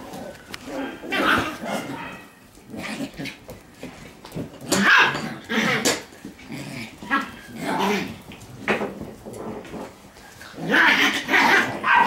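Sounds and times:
puppies growling and yapping: 0.0s - 12.0s.

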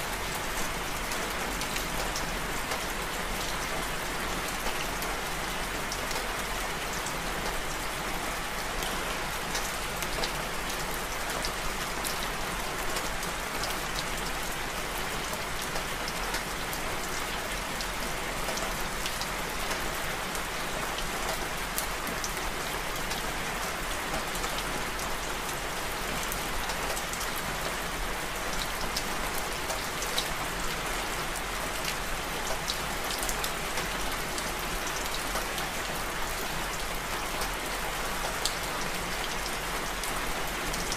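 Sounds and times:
steady rain falling: 0.0s - 40.9s.

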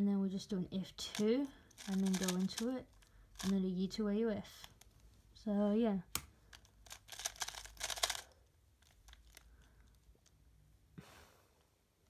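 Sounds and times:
speed cube clicking turns: 1.0s - 3.6s, 6.2s - 10.0s.

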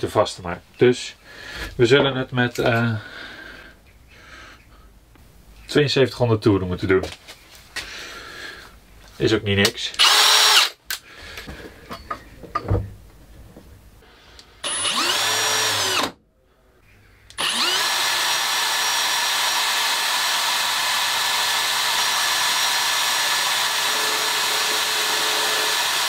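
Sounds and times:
cordless drill spinning: 10.0s - 10.8s, 14.6s - 16.2s, 17.3s - 26.0s.

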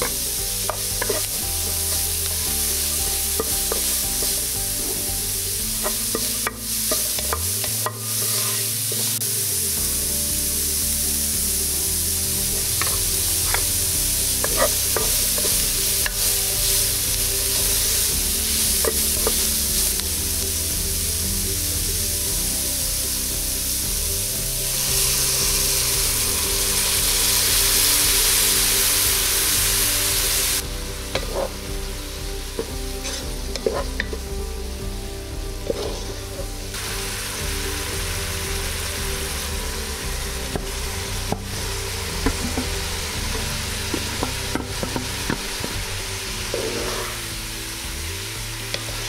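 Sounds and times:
stirring clicks and scrapes: 0.0s - 2.4s
vegetables sizzling in oil: 0.0s - 49.0s.

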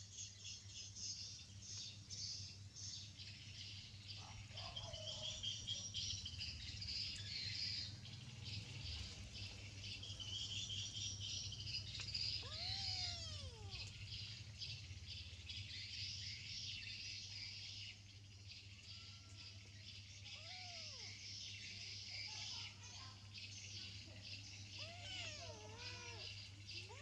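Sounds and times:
insects chirring: 0.0s - 27.0s
animal call: 12.2s - 14.1s, 20.2s - 21.3s, 24.7s - 27.0s.

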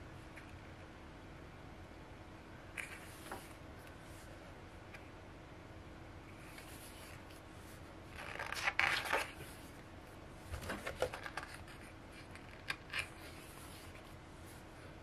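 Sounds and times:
paper pages rustling: 8.1s - 9.6s.

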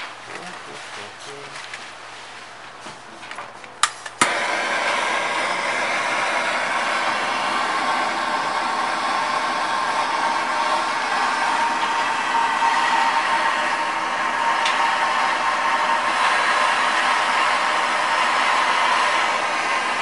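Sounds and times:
gas torch igniter clicks: 3.8s - 5.0s
gas torch hissing: 3.8s - 20.0s.

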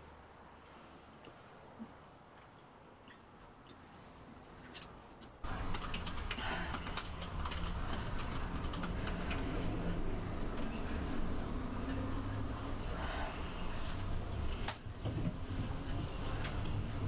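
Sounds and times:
low steady hum: 0.0s - 17.0s
laptop keyboard typing: 4.4s - 11.1s.

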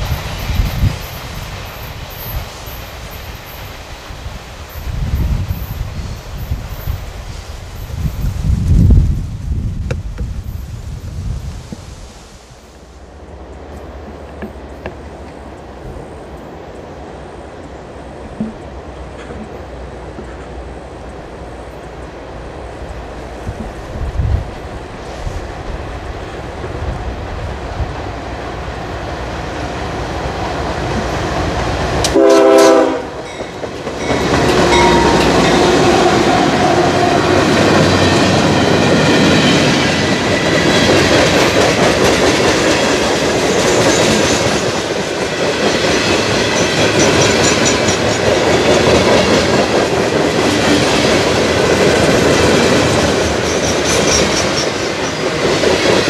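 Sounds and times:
freight train rumble: 0.0s - 56.0s
train wheels clattering over rail joints: 18.2s - 21.2s, 33.2s - 56.0s
locomotive air horn blast: 32.0s - 33.3s, 34.5s - 37.4s.

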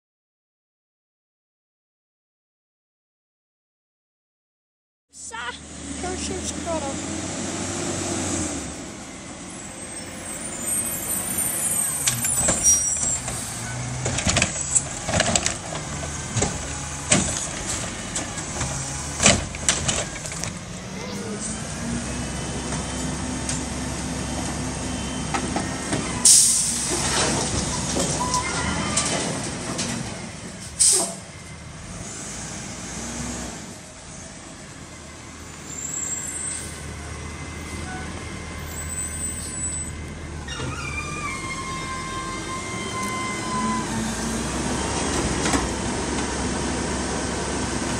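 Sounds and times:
garbage truck engine: 5.2s - 47.9s
loud hiss of air: 26.2s - 27.1s, 30.6s - 31.2s.

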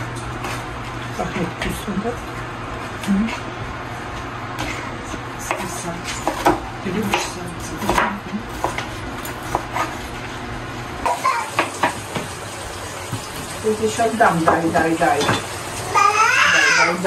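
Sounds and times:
dishes clinking: 14.4s - 15.6s.

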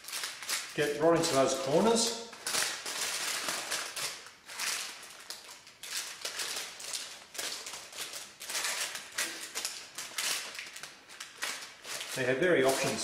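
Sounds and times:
parchment paper rustling: 0.0s - 13.0s.

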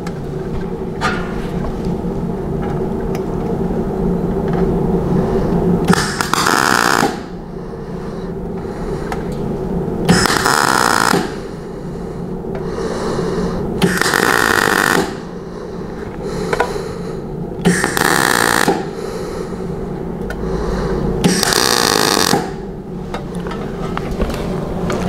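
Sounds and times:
steady hum: 0.0s - 25.0s
crackling welding arc bursts: 5.9s - 7.3s, 10.1s - 11.4s, 13.8s - 15.3s, 17.6s - 18.9s, 21.2s - 22.6s.

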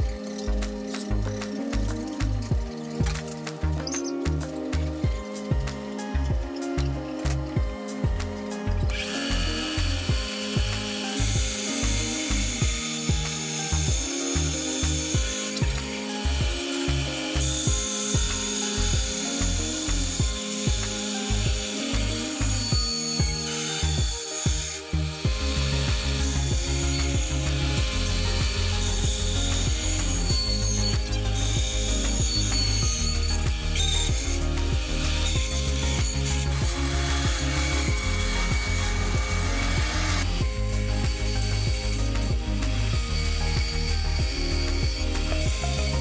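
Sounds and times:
background music with a beat: 0.0s - 46.0s
band saw cutting wood: 0.0s - 46.0s.

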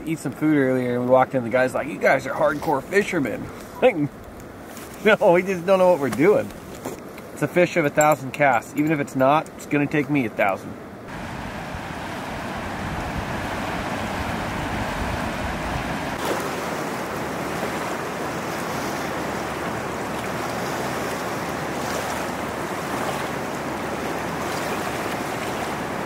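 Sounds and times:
river rushing over rapids: 11.1s - 26.0s.

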